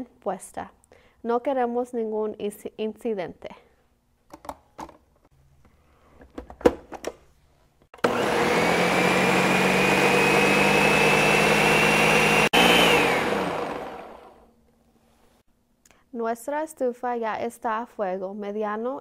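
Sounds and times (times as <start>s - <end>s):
blender motor whine: 8.0s - 14.4s.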